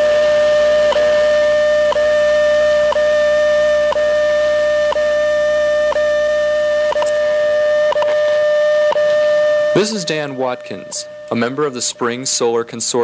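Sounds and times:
steady mid-pitched tone: 0.0 - 13.0
time signal ticks: 0.8 - 1.2, 1.9 - 2.2, 2.8 - 3.2, 3.8 - 12.7.

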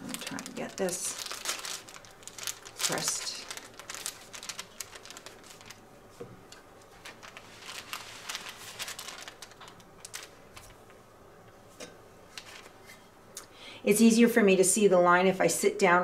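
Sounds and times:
fabric rustling: 0.1 - 10.8.

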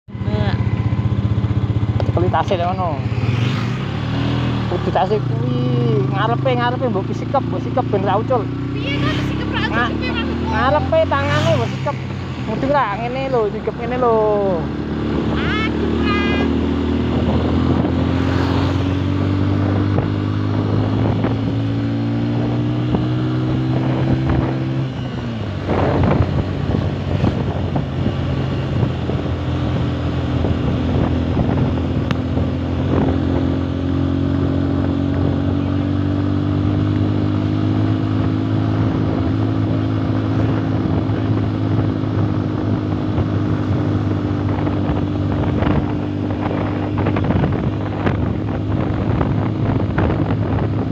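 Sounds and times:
motorcycle engine running: 0.1 - 50.9
wind rushing over microphone: 0.1 - 50.9.

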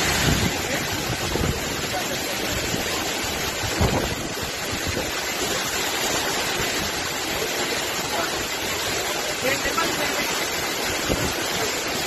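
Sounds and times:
wind gust buffeting microphone: 0.0 - 5.6
heavy wind and rain: 0.0 - 12.0.

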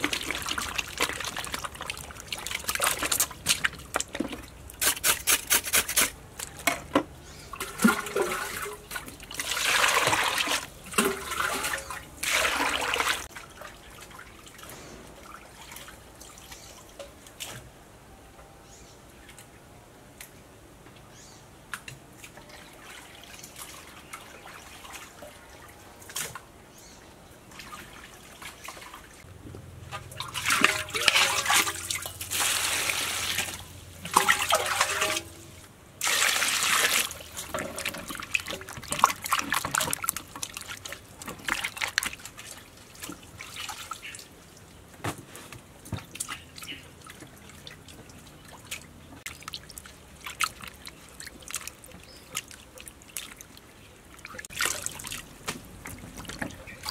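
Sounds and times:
water dripping: 0.0 - 4.8, 29.5 - 45.0, 45.8 - 56.9
water pouring and splashing: 0.0 - 17.7, 21.9 - 26.5, 27.4 - 56.9
hands swishing in basin of water: 30.2 - 44.4, 45.1 - 56.9.

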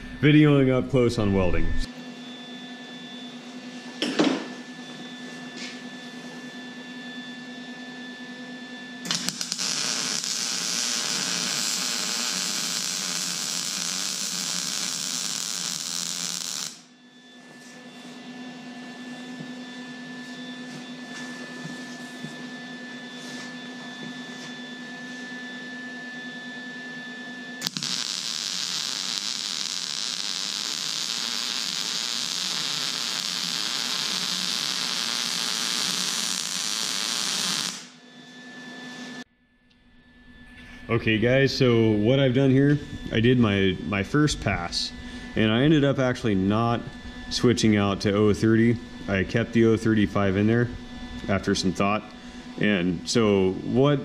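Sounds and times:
electrical hum: 0.0 - 54.0
welding arc crackling and sizzling: 9.0 - 16.9, 27.6 - 38.0.

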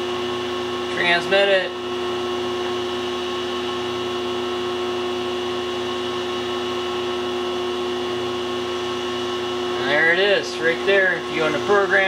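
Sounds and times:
idle machine hum: 0.0 - 12.0.

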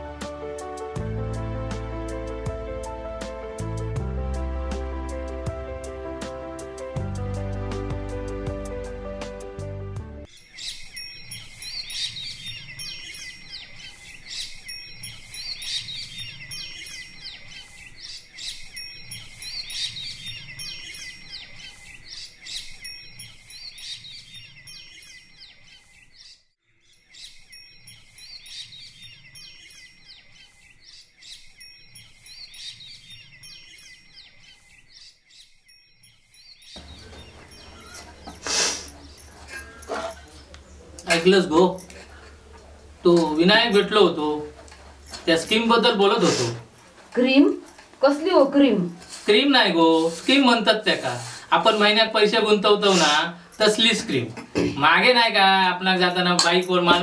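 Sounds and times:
birds chirping: 10.2 - 57.0.

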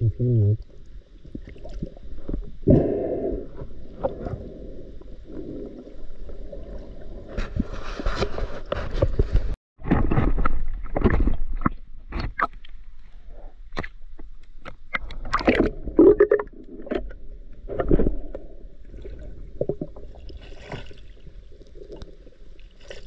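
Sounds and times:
underwater gurgling and sloshing: 0.6 - 23.0.

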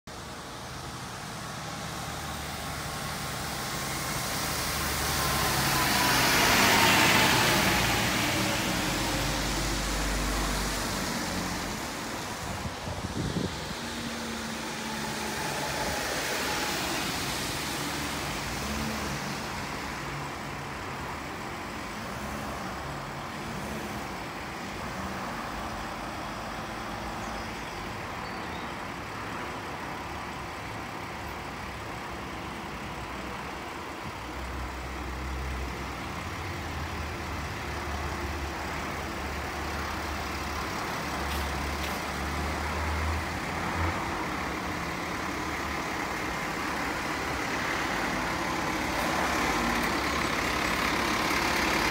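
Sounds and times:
deep truck engine rumble: 0.1 - 51.9
van and truck engines running: 0.1 - 51.9
car passing with tyre hiss: 0.2 - 51.9.

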